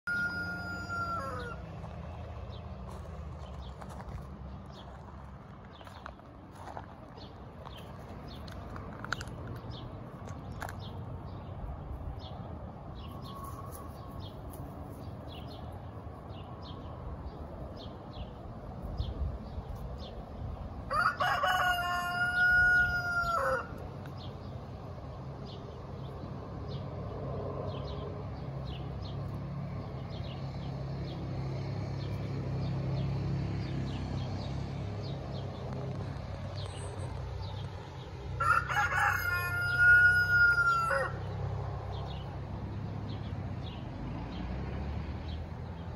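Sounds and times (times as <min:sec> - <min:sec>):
rooster crowing: 0:00.0 - 0:01.6, 0:20.9 - 0:23.8, 0:38.4 - 0:41.3.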